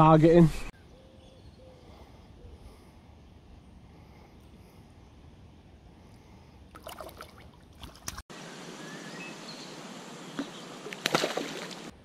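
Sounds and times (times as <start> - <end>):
fish splashing in water: 6.8 - 8.2, 10.8 - 11.9
outdoor hiss: 8.3 - 11.9.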